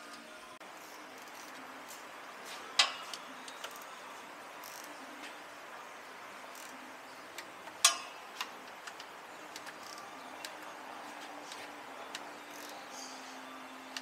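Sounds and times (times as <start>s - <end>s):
hand tools clicking on metal: 7.8s - 10.6s.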